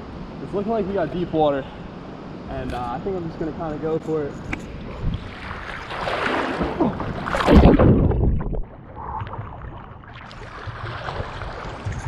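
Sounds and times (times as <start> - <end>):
water lapping: 4.6 - 12.0
water splashing from swimming: 5.0 - 12.0.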